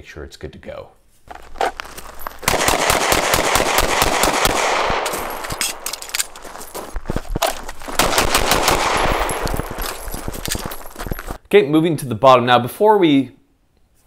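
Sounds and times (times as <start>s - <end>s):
pistol shots: 2.4s - 6.4s, 8.0s - 10.1s.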